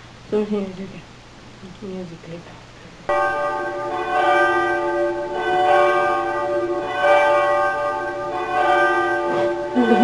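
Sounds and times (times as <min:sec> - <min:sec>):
church bells ringing: 0:03.1 - 0:10.0.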